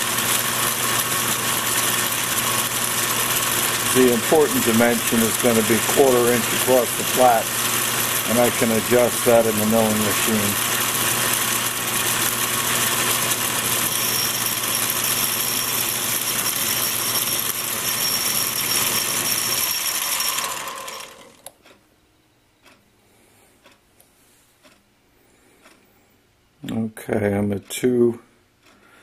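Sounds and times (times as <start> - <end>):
lathe running: 0.0 - 21.4.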